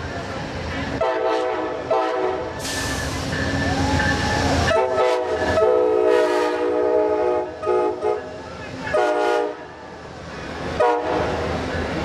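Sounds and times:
train rumbling past: 0.0 - 12.0
train air horn: 1.0 - 3.0, 4.7 - 8.3, 8.9 - 9.7, 10.8 - 11.4.

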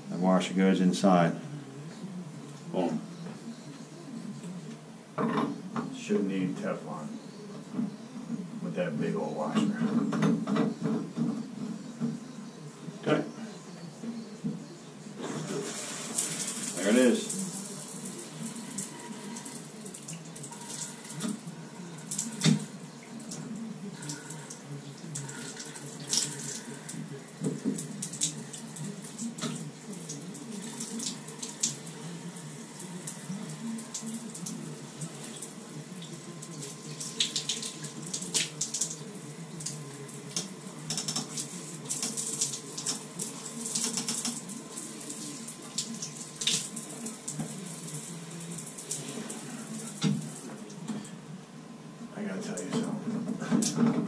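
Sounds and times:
shower water spraying on tiles: 15.2 - 50.8.

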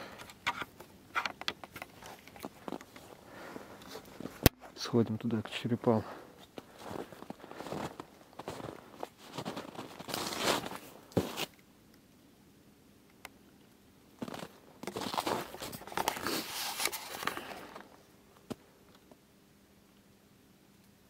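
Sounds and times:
footsteps crunching through snow: 2.0 - 4.9, 6.0 - 11.5, 14.2 - 17.9.

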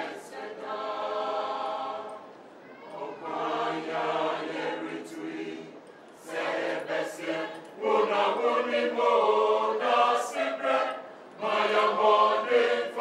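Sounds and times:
choir singing: 0.0 - 13.0.

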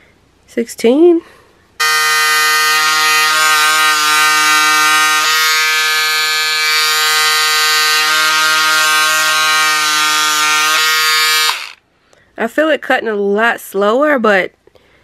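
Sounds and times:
electric scissors motor buzz: 1.8 - 11.8.

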